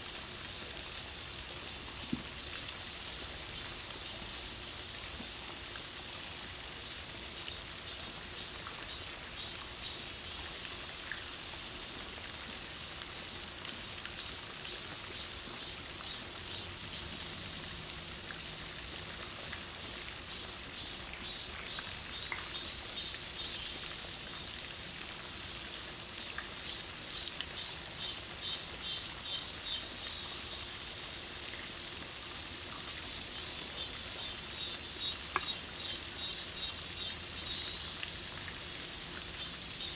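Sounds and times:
insects chirring: 33.2 - 39.9.

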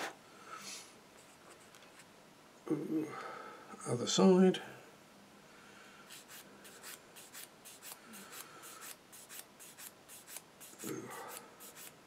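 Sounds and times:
sanding stick rubbing plastic: 6.1 - 10.9, 11.6 - 12.0.

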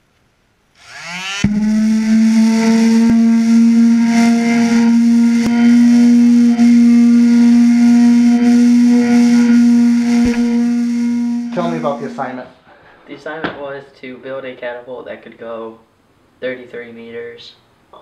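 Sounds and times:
palm sander running: 0.8 - 12.4.

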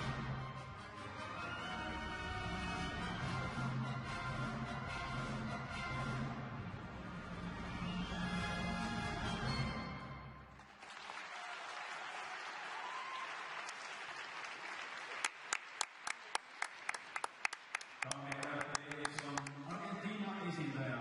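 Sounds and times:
crowd applauding: 10.5 - 20.2
loud sharp claps close by: 10.6 - 19.7
man's voice: 18.1 - 21.0.

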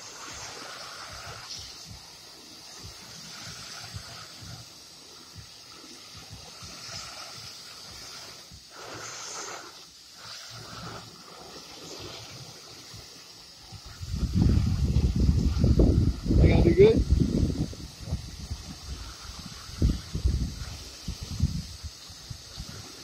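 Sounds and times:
water spraying on plastic box: 0.0 - 23.0.

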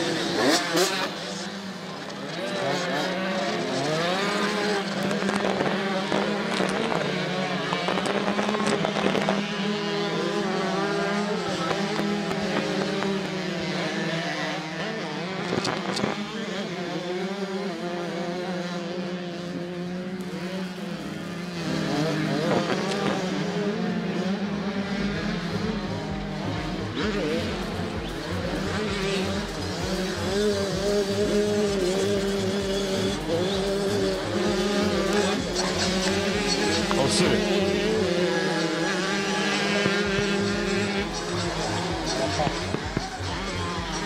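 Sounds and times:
motocross bikes revving: 0.0 - 44.0.

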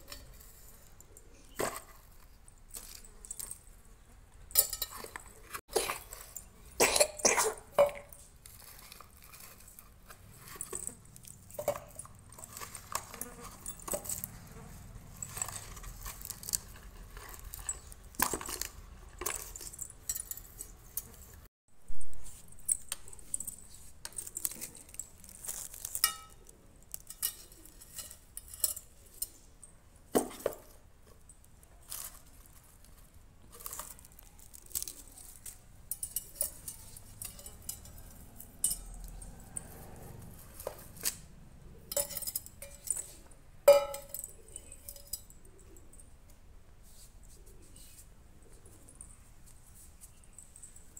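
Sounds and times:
onions knocking against steel bowl: 43.7 - 45.3.

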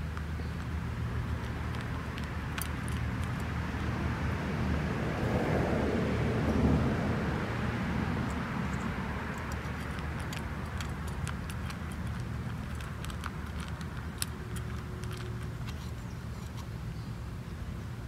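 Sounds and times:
cat eating from metal bowl: 0.0 - 3.9, 8.0 - 16.8.

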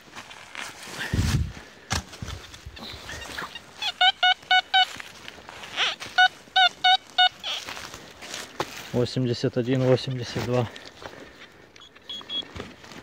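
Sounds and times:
dull thud of digging: 1.2 - 2.4
metal detector beeps: 2.8 - 5.0, 5.7 - 7.6, 11.8 - 12.6.

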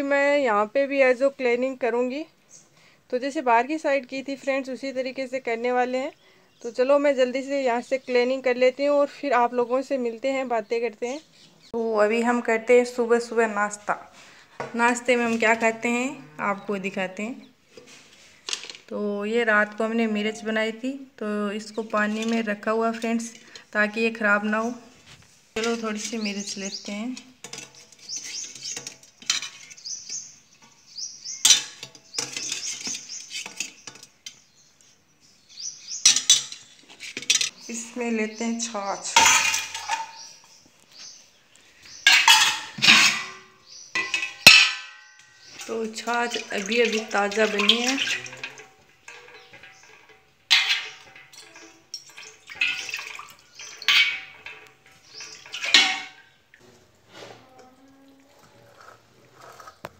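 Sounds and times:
spoon scraping metal container: 25.6 - 30.4, 31.2 - 34.6, 41.9 - 56.2, 58.4 - 59.9
buttermilk splashing pours: 45.5 - 56.7
spoon clinking on metal: 46.4 - 56.1.

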